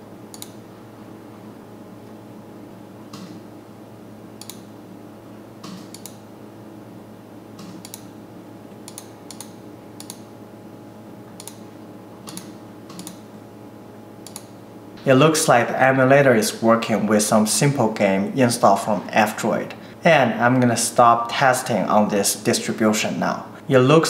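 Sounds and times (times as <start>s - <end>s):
faint steady hum: 0.0s - 24.0s
computer mouse clicks: 0.3s - 0.6s, 4.4s - 4.7s, 5.6s - 6.2s, 7.6s - 8.1s, 8.8s - 10.2s, 11.4s - 11.6s, 12.3s - 13.2s, 14.2s - 14.5s.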